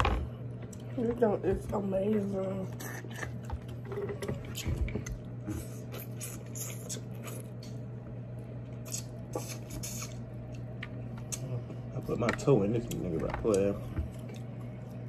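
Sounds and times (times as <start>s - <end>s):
steady low hum: 0.0s - 15.0s
chewing: 2.7s - 7.8s, 12.8s - 15.0s.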